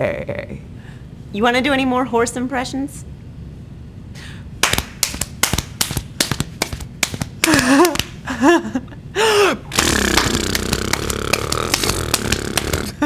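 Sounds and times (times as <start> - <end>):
lip-flutter snort: 9.7 - 13.0.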